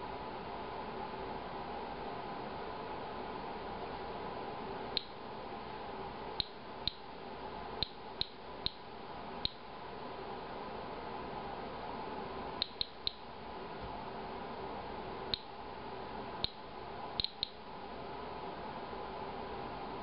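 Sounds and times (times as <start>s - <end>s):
geiger counter clicking: 6.4s - 7.0s, 7.8s - 8.8s, 12.6s - 13.2s, 17.2s - 17.6s.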